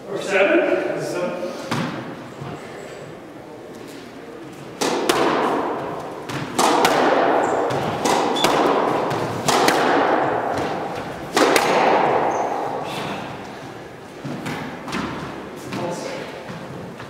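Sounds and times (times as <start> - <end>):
squash ball hits echoing: 1.7 - 2.2, 4.8 - 16.7.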